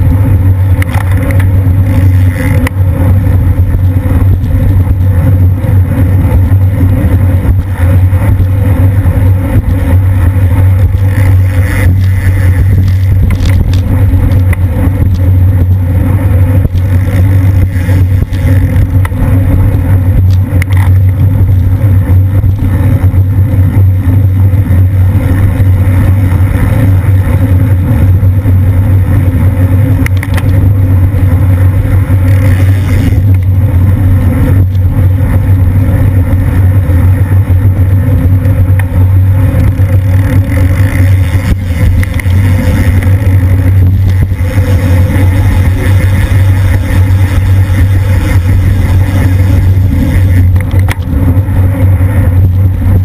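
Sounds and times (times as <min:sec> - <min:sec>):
wind buffeting microphone: 0:00.0 - 0:53.0.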